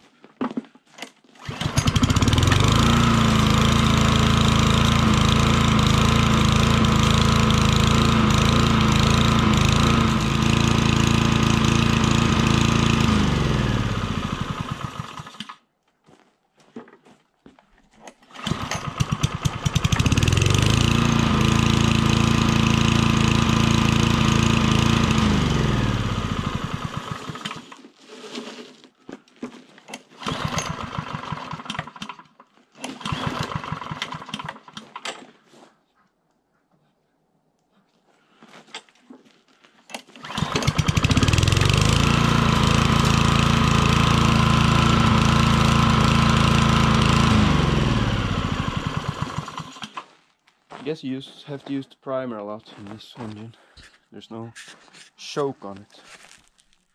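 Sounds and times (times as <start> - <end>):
lawn mower engine starting and stalling: 1.0 - 15.7, 18.0 - 35.4, 39.8 - 50.2.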